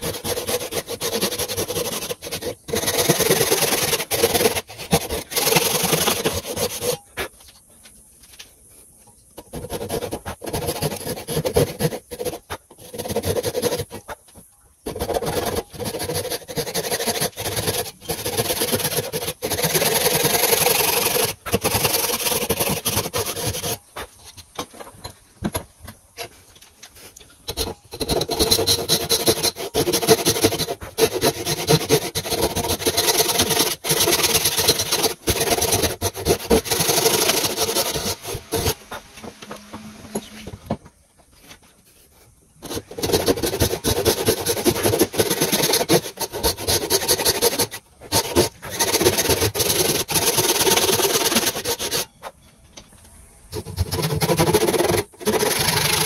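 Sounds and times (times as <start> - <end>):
handsaw sawing wood: 0.0 - 7.0, 9.5 - 14.2, 14.9 - 23.9, 27.5 - 38.9, 42.6 - 52.1, 53.6 - 56.0.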